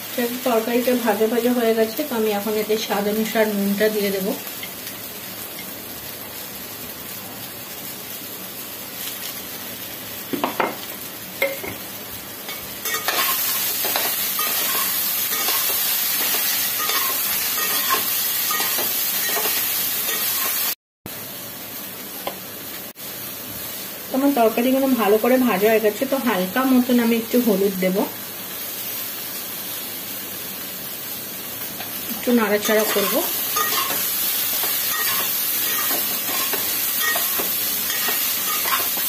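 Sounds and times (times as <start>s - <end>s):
vegetables sizzling in oil: 0.0s - 39.0s.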